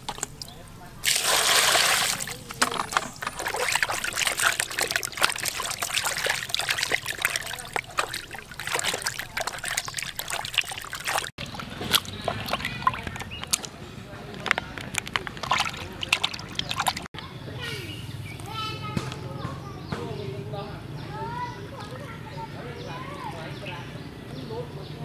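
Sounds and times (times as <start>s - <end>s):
water dripping: 0.0s - 13.7s, 14.4s - 17.1s
hands splashing in water basin: 1.0s - 13.7s, 14.8s - 17.1s.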